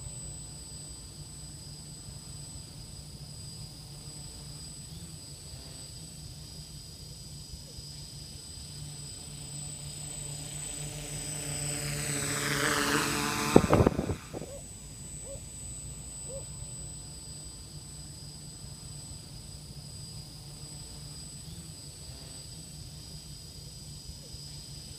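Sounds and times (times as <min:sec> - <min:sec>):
drone propellers buzzing: 0:00.0 - 0:24.0
wind buffeting on microphone: 0:13.3 - 0:14.6.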